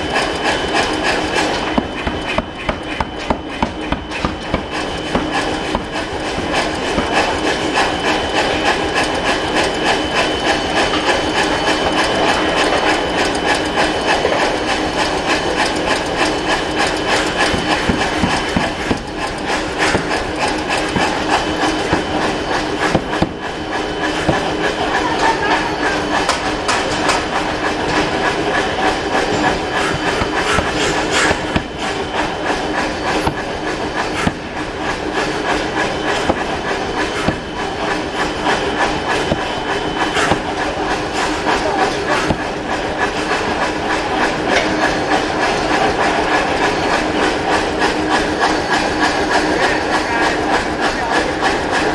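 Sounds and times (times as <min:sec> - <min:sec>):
forging hammer blows on steel: 0:00.0 - 0:51.8
steady machine hum: 0:00.0 - 0:51.9.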